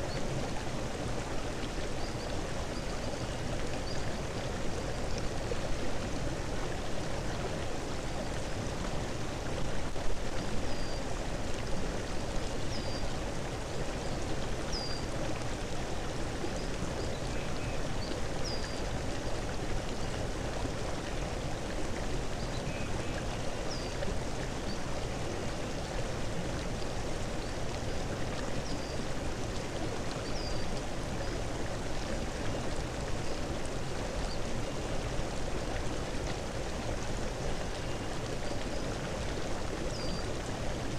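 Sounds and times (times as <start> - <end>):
running water: 0.0 - 40.9.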